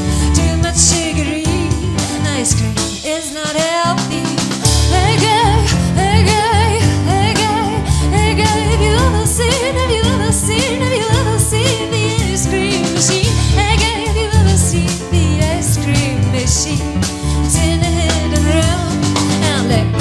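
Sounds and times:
drum kit: 0:00.0 - 0:20.0
woman singing: 0:00.0 - 0:20.0.

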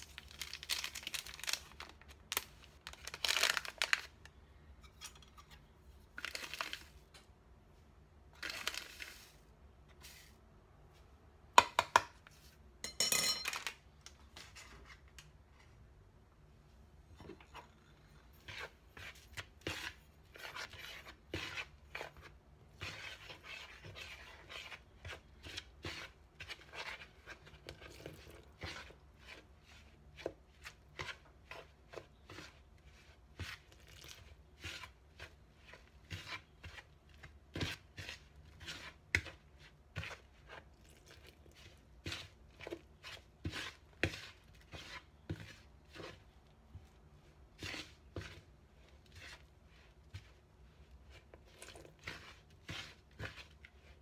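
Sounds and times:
hand scuffing flour in bowl: 0:08.7 - 0:11.2
soft continuous rustle: 0:08.8 - 0:11.4, 0:13.5 - 0:54.0.

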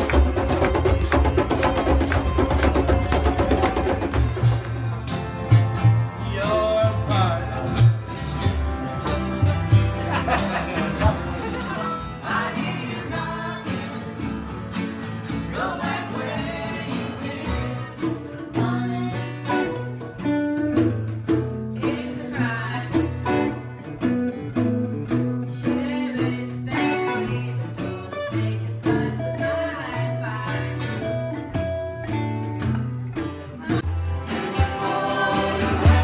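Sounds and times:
hand drum tapping a beat: 0:00.0 - 0:08.0, 0:18.0 - 0:29.6
acoustic guitars strumming: 0:00.0 - 0:36.0.

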